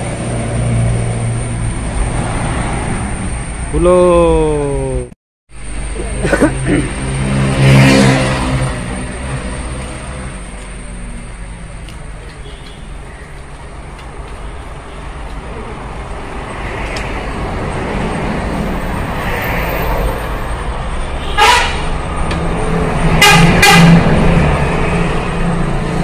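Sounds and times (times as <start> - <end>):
vehicle engine and road noise: 0.0 - 26.0
car horn toots: 21.2 - 21.9, 23.2 - 24.0.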